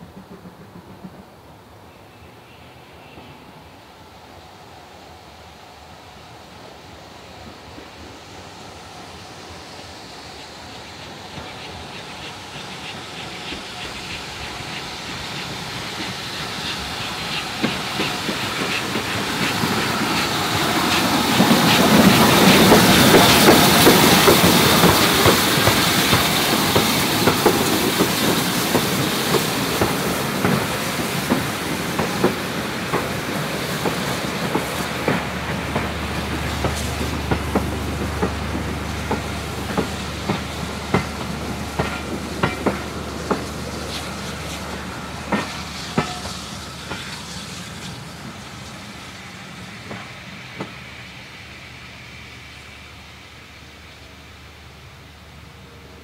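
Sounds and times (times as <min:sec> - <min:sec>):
train wheels clicking over rail joints: 0:00.0 - 0:02.0, 0:09.2 - 0:51.9
steam hiss: 0:00.0 - 0:56.0
steam locomotive passing: 0:00.0 - 0:56.0.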